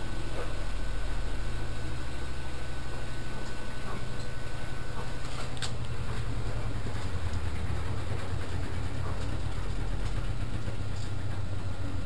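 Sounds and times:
washing machine spinning: 0.0s - 12.0s.

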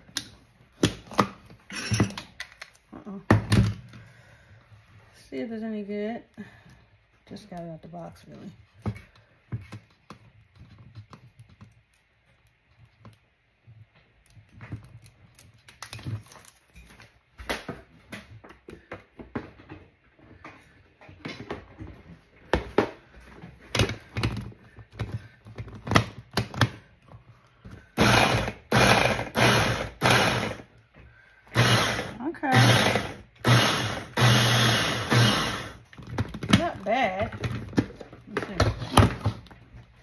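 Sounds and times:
hand blender motor chopping: 28.0s - 30.7s, 31.5s - 35.9s.

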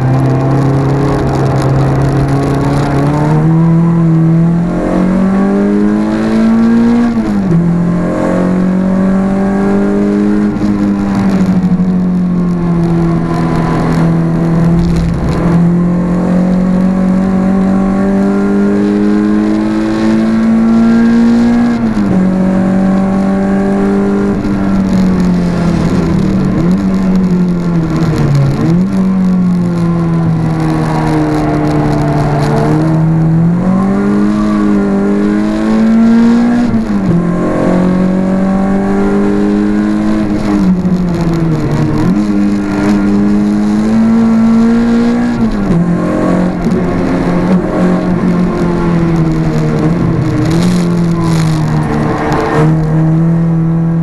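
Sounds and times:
car engine accelerating hard: 0.0s - 54.0s.

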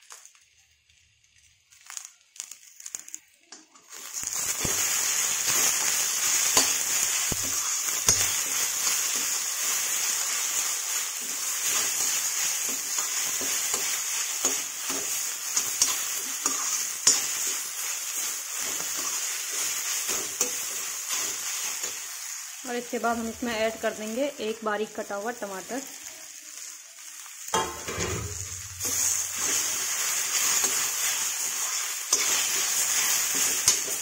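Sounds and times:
food sizzling in a pan: 0.0s - 34.0s
metal spatula scraping pan: 27.6s - 34.0s.

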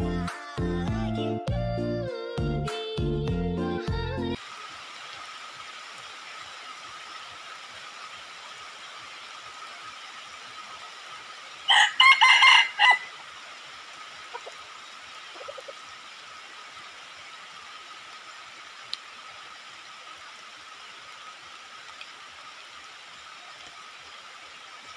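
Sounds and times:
rooster crowing: 11.7s - 13.2s.

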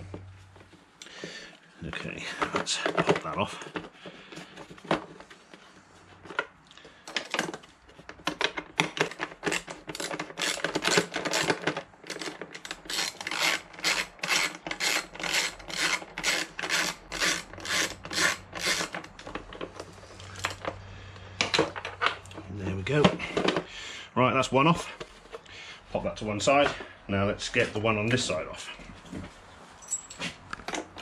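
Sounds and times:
ratchet strokes: 12.8s - 19.0s.

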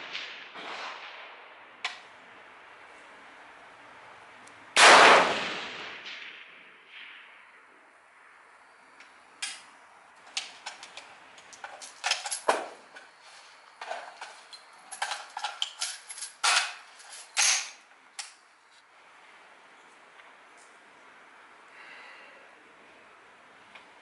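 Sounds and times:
metallic clicks of rifle handling: 10.3s - 13.1s, 13.8s - 18.4s.

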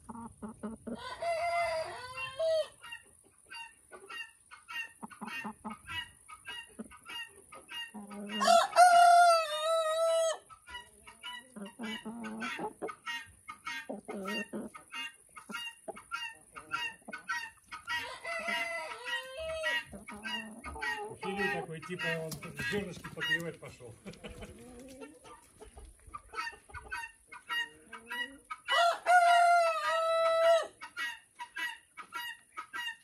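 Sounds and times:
chickens clucking: 0.0s - 33.0s
rooster crowing loudly: 1.0s - 2.7s, 8.4s - 10.4s, 17.9s - 19.7s, 28.7s - 30.7s.

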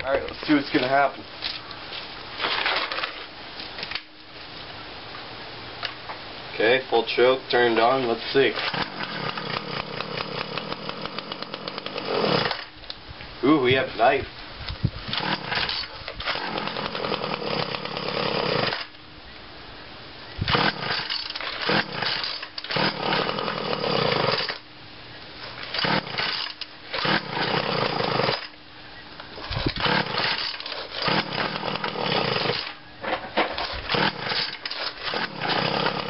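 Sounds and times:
string trimmer engine revving: 7.7s - 12.7s, 15.1s - 19.0s, 20.4s - 24.6s, 25.6s - 28.6s, 29.4s - 32.8s, 33.6s - 36.0s.

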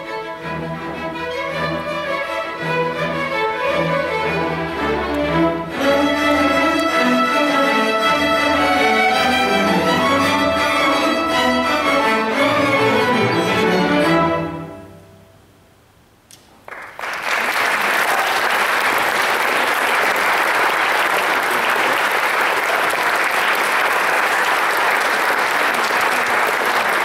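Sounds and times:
string orchestra chord: 0.0s - 15.3s
audience applause: 16.6s - 27.0s.

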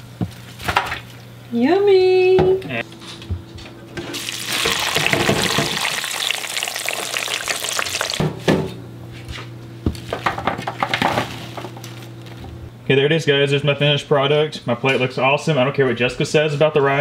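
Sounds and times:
fries sizzling in hot oil: 4.1s - 8.2s.

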